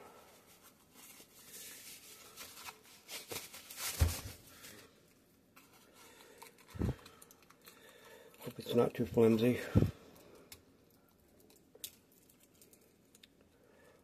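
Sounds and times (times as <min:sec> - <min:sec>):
paper wrapping crinkling: 0:00.3 - 0:05.0.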